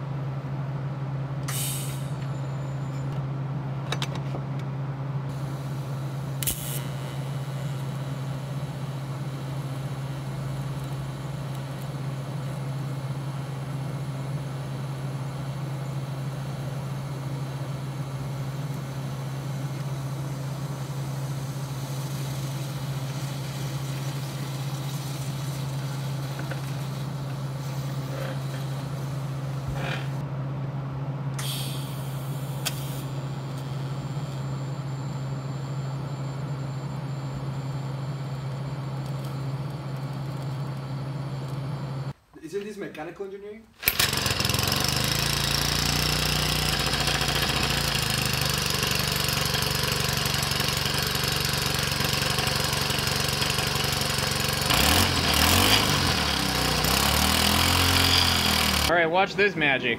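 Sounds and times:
low machine hum: 0.0 - 42.3.

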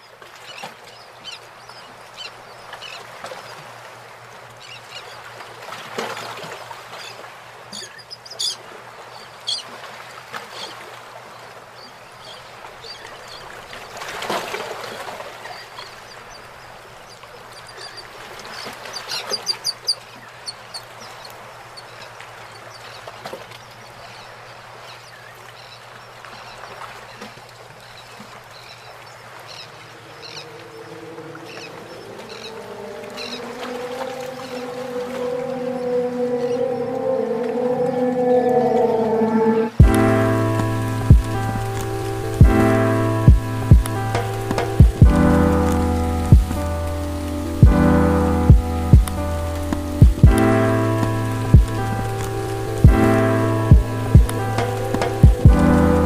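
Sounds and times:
bird calls: 15.4 - 28.0, 28.6 - 39.8
low hum: 30.2 - 56.0.

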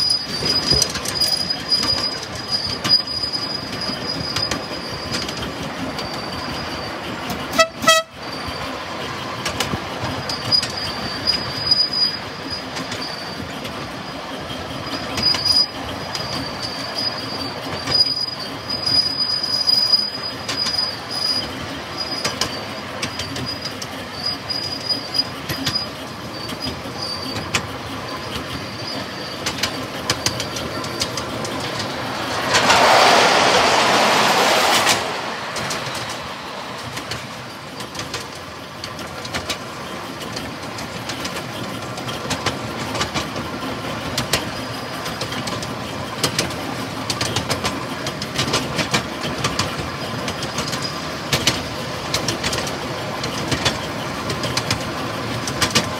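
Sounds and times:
high wheel squeal: 0.0 - 55.9
train wheels clattering on rails: 0.0 - 55.9
train whistle toot: 7.5 - 8.4.

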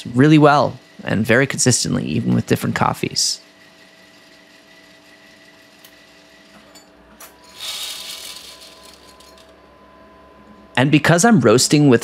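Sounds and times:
coffee roaster humming: 0.0 - 12.0
coffee beans hissing and rattling: 2.9 - 6.6, 7.5 - 9.2.

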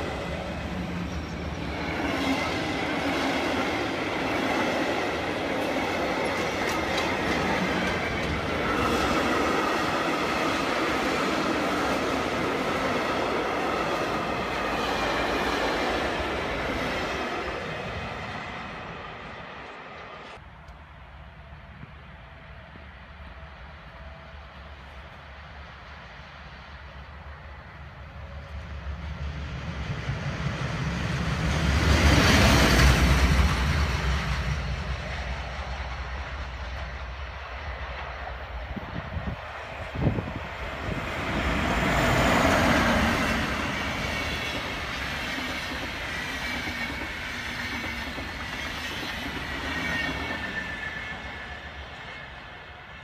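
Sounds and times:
train passing: 0.0 - 53.0
train wheels squealing: 41.7 - 53.0.

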